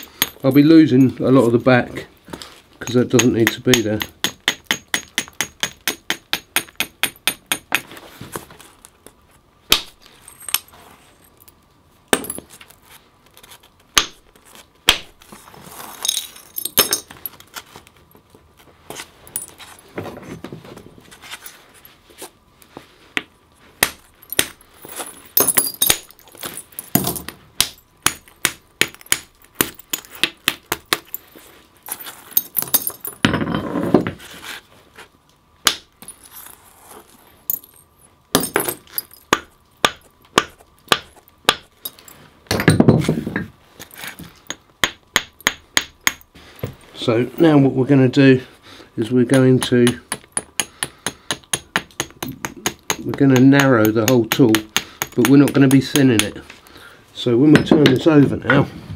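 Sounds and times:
antler hammer striking flint: 2.8s - 8.0s, 12.1s - 12.5s, 23.2s - 31.2s, 38.3s - 43.1s, 44.1s - 46.3s, 49.3s - 56.4s.

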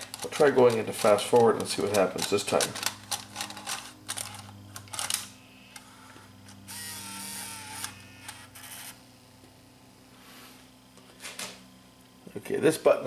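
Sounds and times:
small motor whirring: 3.4s - 9.0s.

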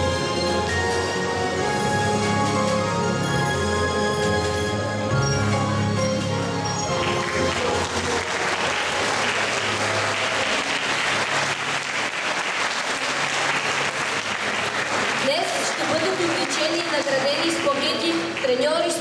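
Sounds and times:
audience applauding: 6.8s - 19.0s.

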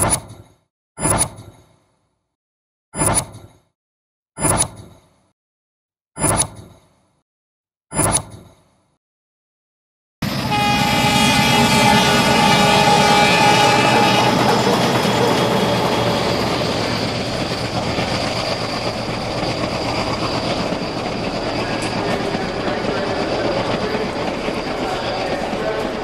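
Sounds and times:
locomotive horn chord: 10.2s - 16.8s
passing train running: 10.2s - 26.0s.

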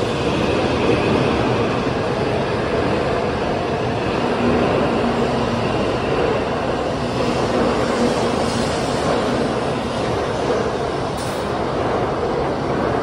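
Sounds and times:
train rushing past: 0.0s - 13.0s.

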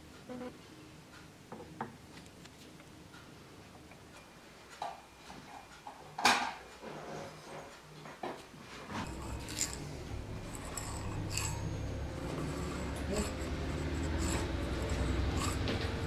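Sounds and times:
metal parts clicking and knocking: 9.0s - 16.0s
metallic clink: 9.1s - 16.0s.

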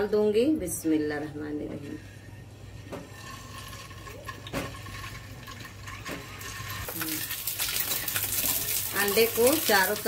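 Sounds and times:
oil sizzling in frying pan: 4.7s - 10.0s.

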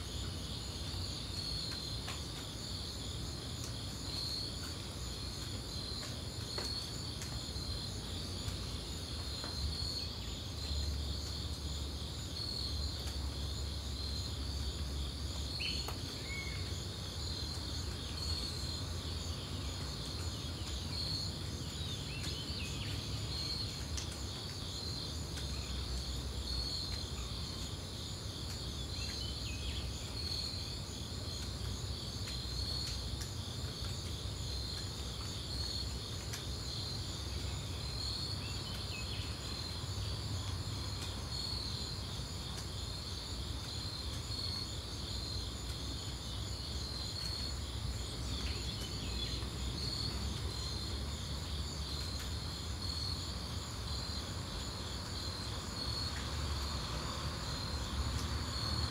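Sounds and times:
crickets and insects chirping: 0.0s - 58.9s.

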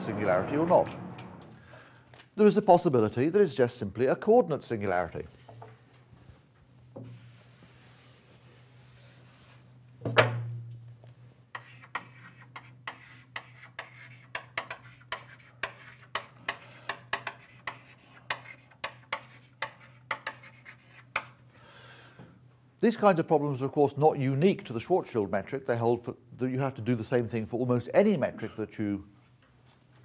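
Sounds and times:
knock: 10.1s - 10.6s
chalk scraping on board: 11.5s - 21.4s.

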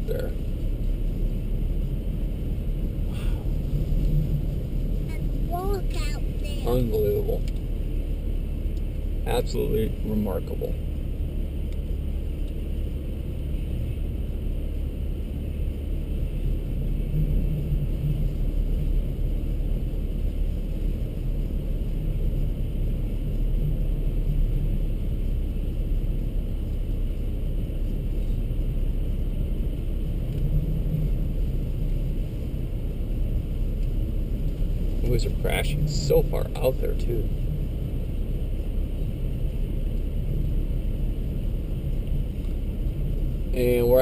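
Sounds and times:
strong wind buffeting a car: 0.0s - 44.0s.

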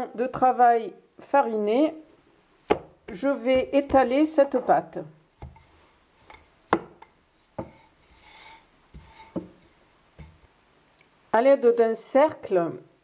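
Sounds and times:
rolling pin knocking on board: 2.7s - 4.1s, 6.7s - 7.8s, 8.9s - 9.6s
rolling pin rubbing over dough: 7.4s - 10.4s.

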